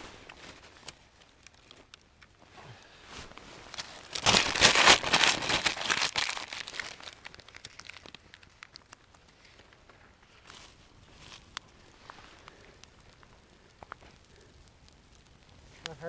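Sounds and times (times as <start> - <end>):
dry twigs crackling: 0.0 - 16.0
newspaper crumpling: 3.7 - 8.9.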